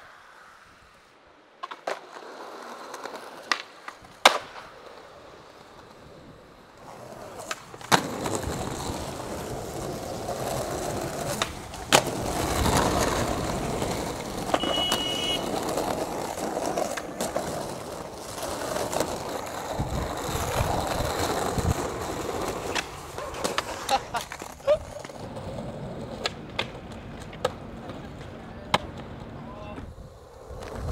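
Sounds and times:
skateboard wheels rolling on concrete: 0.0 - 30.9
skateboard clacking on ground: 1.6 - 30.9.

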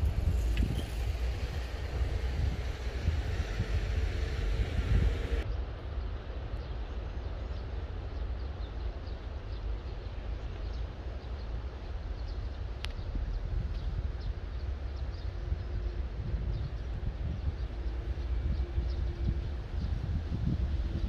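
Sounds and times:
distant traffic rumble: 0.0 - 5.6
wind: 0.0 - 21.0.

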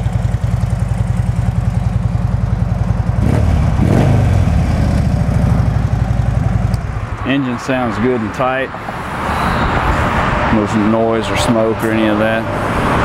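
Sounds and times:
motorcycle engine idling rumble: 0.0 - 7.8.

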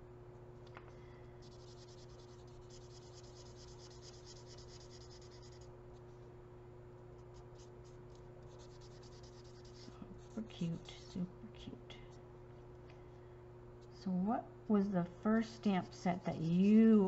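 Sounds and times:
marker nib scratching on card: 1.4 - 5.7, 7.2 - 11.1.

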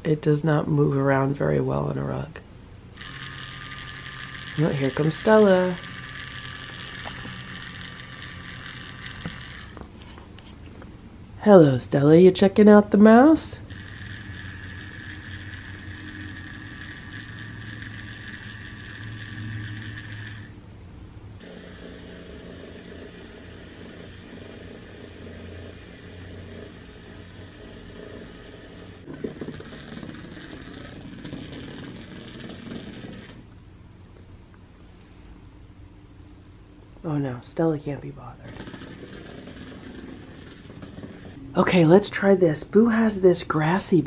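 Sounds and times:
toy motor whirring: 2.9 - 10.2, 13.2 - 20.6, 21.4 - 33.5, 38.3 - 42.4.

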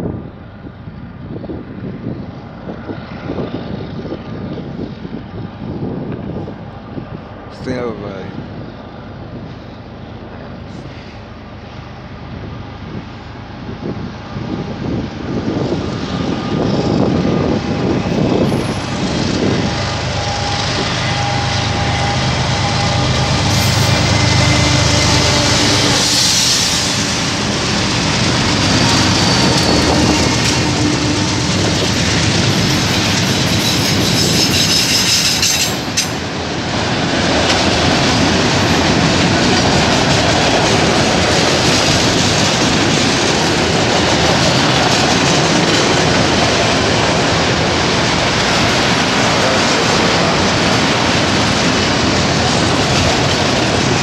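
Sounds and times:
diesel locomotive engines: 0.0 - 54.0
train wheels on rails: 8.5 - 54.0.

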